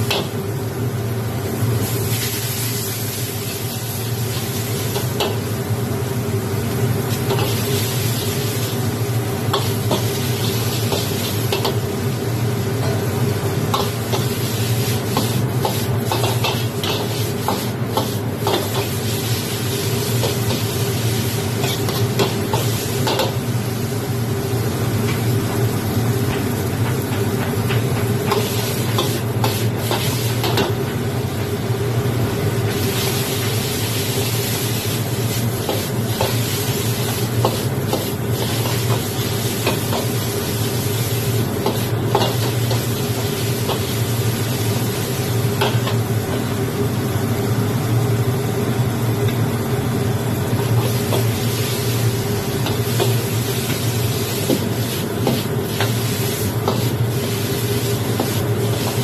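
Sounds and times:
food sizzling in wok: 0.0 - 27.0, 27.6 - 59.0
spatula scraping wok: 9.5 - 11.8, 13.8 - 23.4, 28.3 - 30.7, 52.6 - 59.0.

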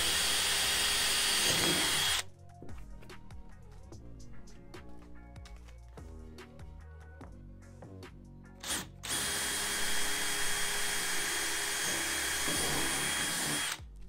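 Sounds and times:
cordless drill whining: 0.0 - 2.3, 8.6 - 13.9
background music: 0.1 - 14.0.

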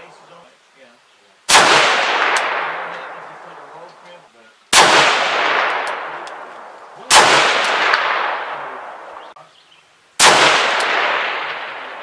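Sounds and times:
rifle shots: 1.5 - 4.0, 4.7 - 9.4, 10.2 - 12.0
gunshot echo: 1.5 - 4.1, 4.7 - 9.4, 10.2 - 12.0.

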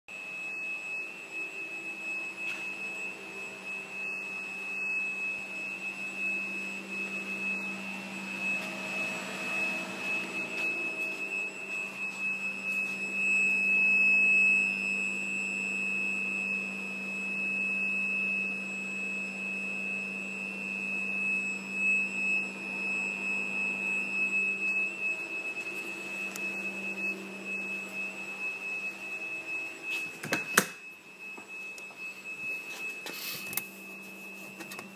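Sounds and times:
high-pitched whistle: 0.1 - 34.9
low hum: 1.5 - 14.1, 18.6 - 29.9.

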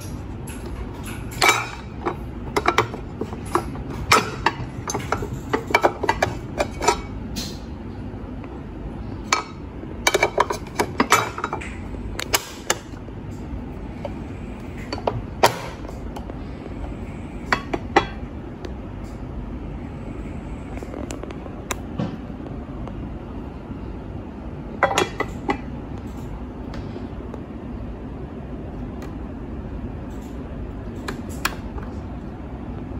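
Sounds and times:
metal plates clacking: 0.0 - 7.6, 9.3 - 13.0.

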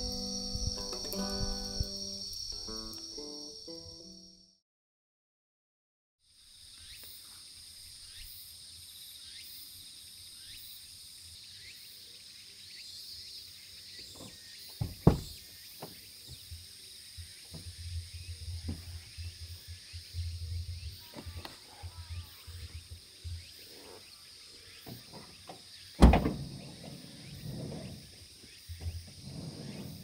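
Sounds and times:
insects chirring: 0.0 - 4.6, 6.3 - 30.0
van door clunk: 14.2 - 16.0, 24.9 - 28.1.

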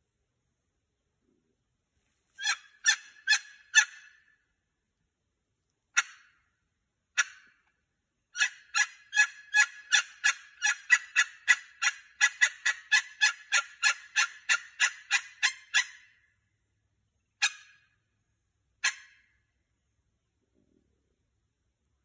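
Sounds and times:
wild turkey yelping: 2.4 - 4.3, 8.4 - 16.1.

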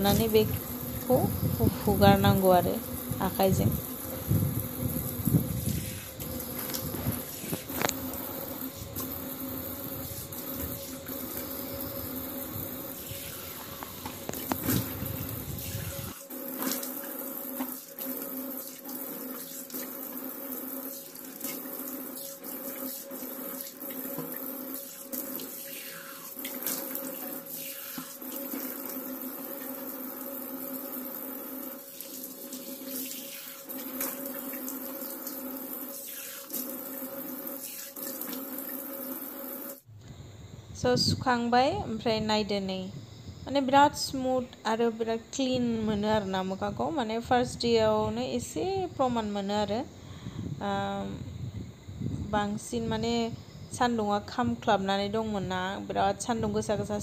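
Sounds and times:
tap running into sink: 21.3 - 25.5.

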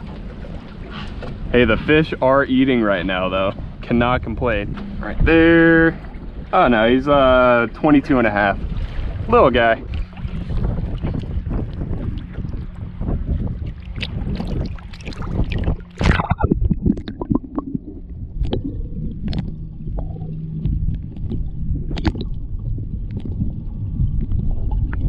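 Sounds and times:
muffled underwater gurgling: 0.0 - 25.0
water sloshing and splashing: 0.0 - 25.0
underwater clicks: 13.8 - 25.0.

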